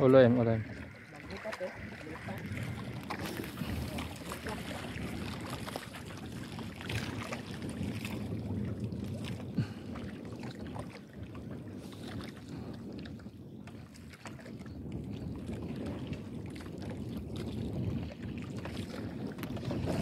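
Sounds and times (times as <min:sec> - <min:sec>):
waves lapping at hull: 0:00.0 - 0:20.0
wind on microphone: 0:00.0 - 0:20.0.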